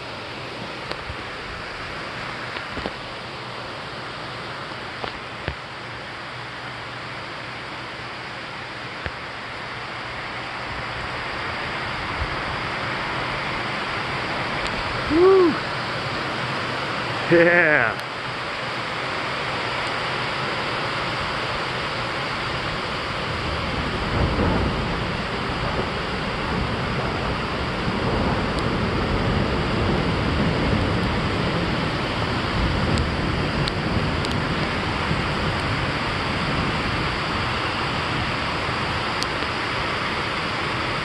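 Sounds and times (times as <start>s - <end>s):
steady rain: 0.0s - 41.0s
thunder rumbling: 20.7s - 41.0s.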